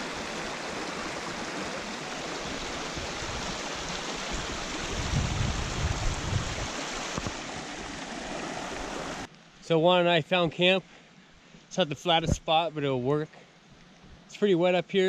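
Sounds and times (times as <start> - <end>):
creek rushing over rocks: 0.0 - 9.3
wind buffeting microphone: 4.2 - 7.4.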